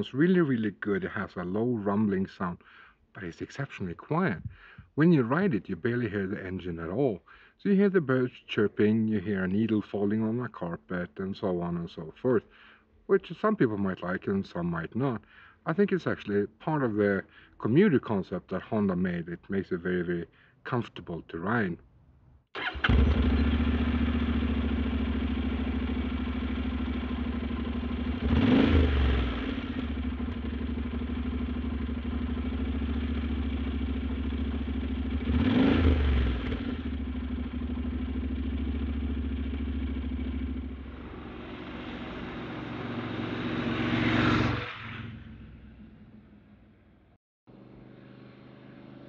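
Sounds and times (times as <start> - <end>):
motorcycle engine idling and revving: 22.6 - 49.0.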